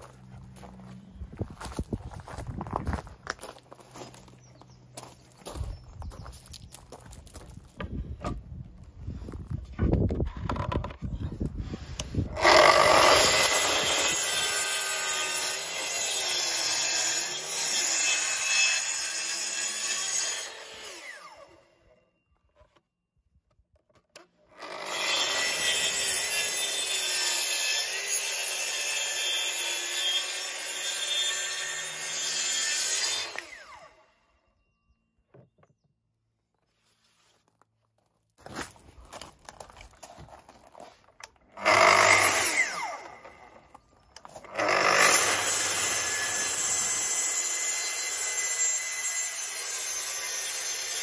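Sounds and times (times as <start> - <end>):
track saw cutting timber: 11.8 - 21.9, 24.5 - 34.2, 41.4 - 51.0.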